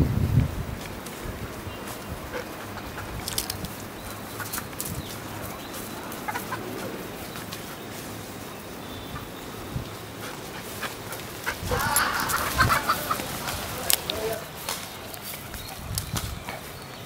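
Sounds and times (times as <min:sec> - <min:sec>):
rustling: 0:00.5 - 0:17.0
chickens clucking: 0:01.8 - 0:17.0.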